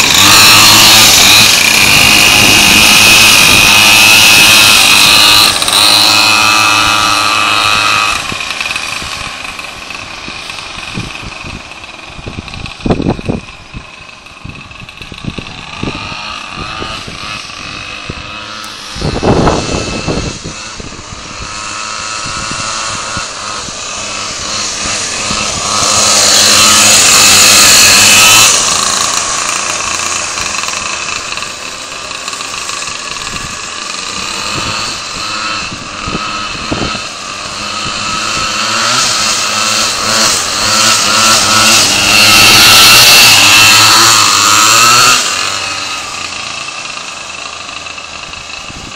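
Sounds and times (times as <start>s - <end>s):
small engines revving: 0.0s - 48.9s
loud rushing noise: 15.7s - 47.7s.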